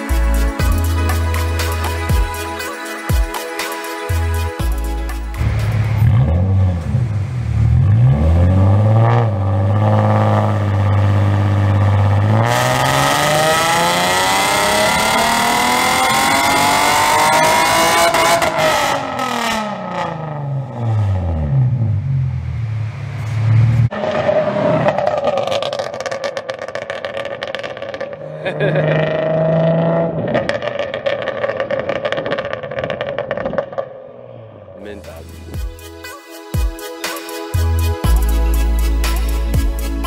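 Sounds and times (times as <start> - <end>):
car driving off: 5.1 - 35.4
car engine revving: 5.1 - 35.6.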